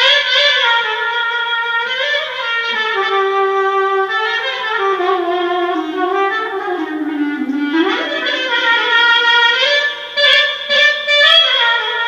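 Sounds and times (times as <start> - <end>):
solo clarinet melody: 0.0 - 12.0.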